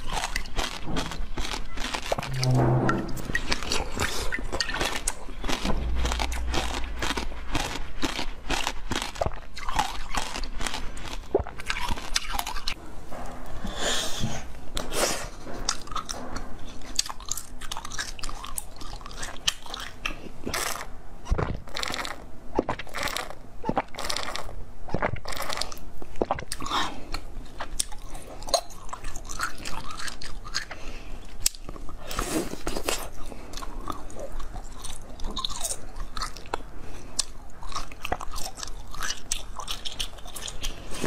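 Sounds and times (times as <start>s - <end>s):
crunchy chewing of frozen jelly: 0.0s - 2.4s, 3.6s - 12.8s, 14.1s - 41.0s.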